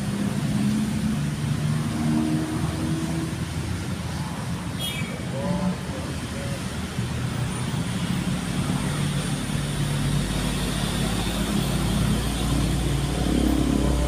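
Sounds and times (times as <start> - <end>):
road traffic noise: 0.0 - 14.0
vehicle engine rumbling: 0.0 - 14.0.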